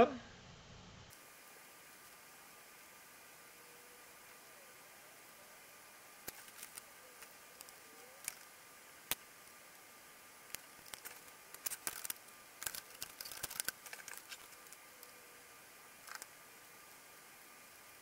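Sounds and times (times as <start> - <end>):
faint steady high tone: 3.3 - 5.8.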